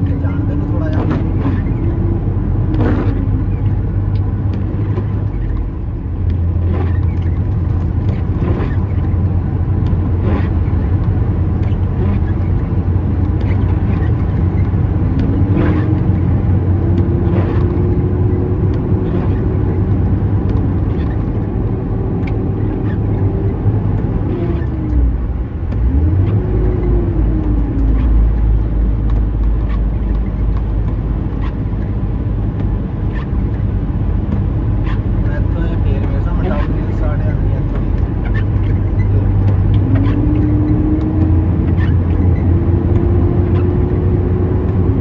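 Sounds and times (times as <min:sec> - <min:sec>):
engine whine: 0:00.0 - 0:45.0
truck diesel engine rumbling: 0:00.0 - 0:45.0.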